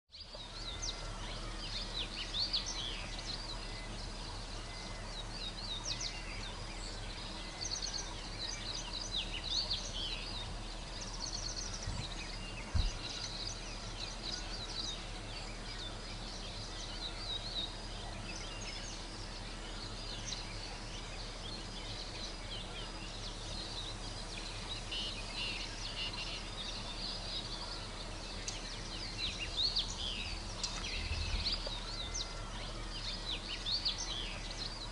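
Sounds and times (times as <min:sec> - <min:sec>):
small birds chirping and trilling: 0:00.1 - 0:34.9
steady low hum: 0:00.1 - 0:34.9
dull low thump: 0:11.8 - 0:13.2.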